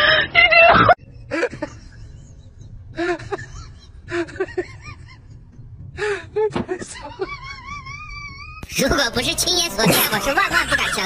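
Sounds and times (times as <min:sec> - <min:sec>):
person giggling and exclaiming: 0:06.7 - 0:11.0.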